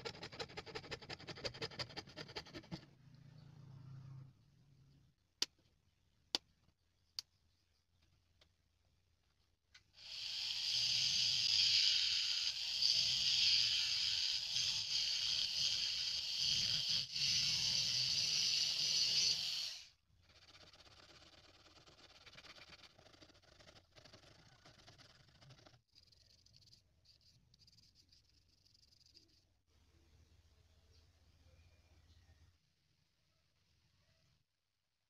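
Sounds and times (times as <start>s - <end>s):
rotary tool cutting plastic: 10.0s - 25.7s.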